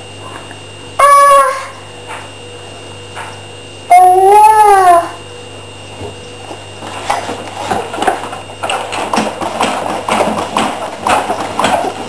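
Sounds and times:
wooden playpen knocking and rattling: 7.1 - 12.0.

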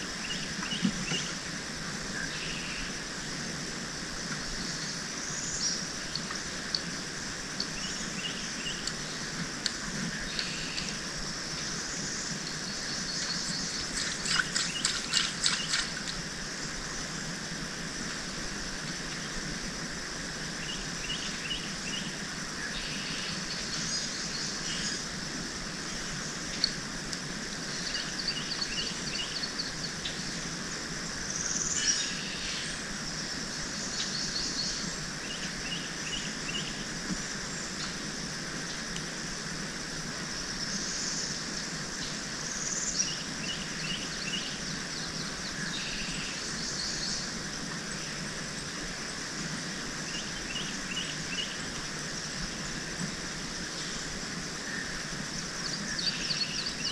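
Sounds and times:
steady background hiss: 0.0 - 56.9
birds chirping: 11.6 - 16.1, 27.7 - 30.3.

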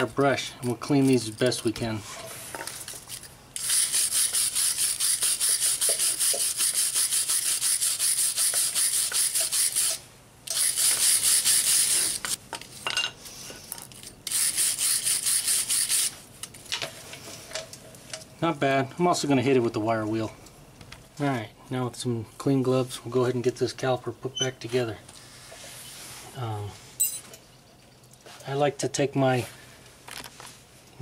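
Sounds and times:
wire brush scrubbing metal: 3.6 - 12.4, 14.3 - 16.2.

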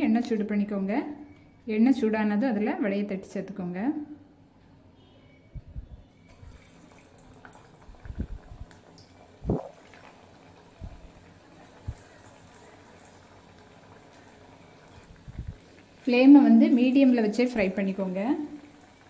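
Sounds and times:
oil sizzling and bubbling: 6.2 - 19.0.

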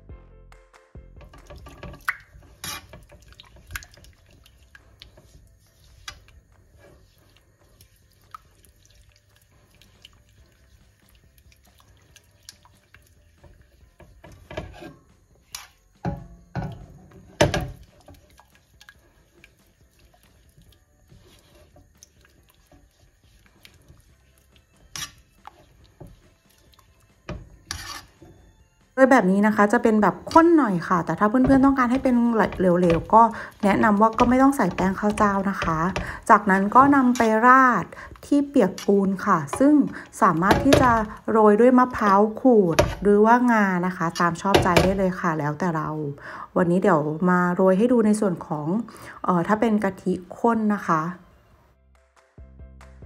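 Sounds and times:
wet slopping: 1.2 - 14.8, 15.4 - 28.3, 29.5 - 45.3
spatula scraping cream in a pan: 1.2 - 28.6, 29.4 - 45.2
spatula knocking against pan: 16.0 - 17.9, 31.3 - 37.2, 39.5 - 41.2.

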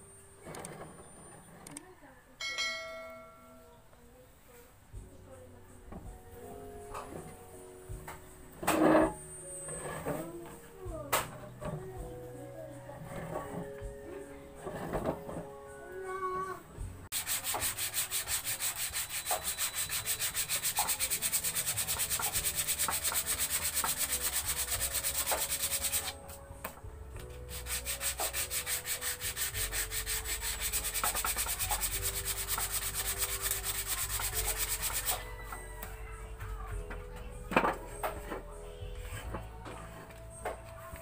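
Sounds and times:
sandpaper rubbing wood: 17.1 - 26.2, 27.5 - 35.3.

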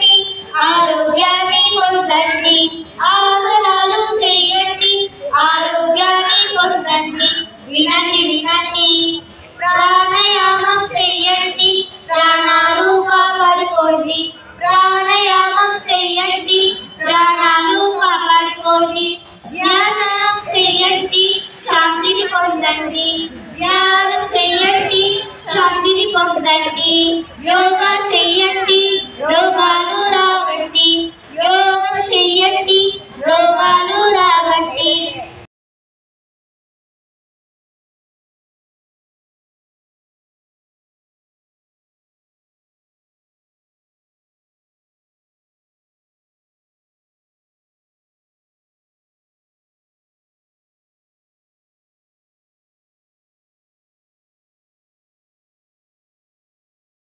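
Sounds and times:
child singing: 0.0 - 35.5.

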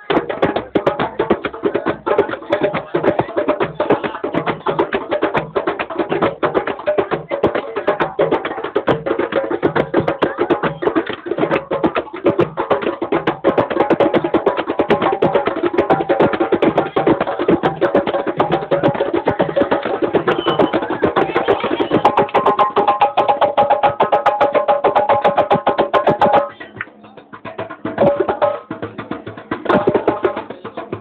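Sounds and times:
live music with fast percussion: 0.0 - 31.0.

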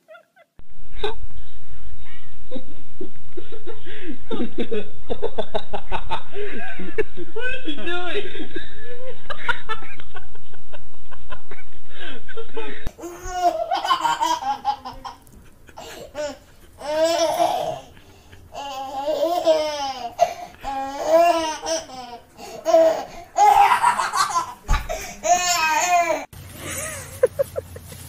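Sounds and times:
toddler laughing: 12.9 - 26.3.

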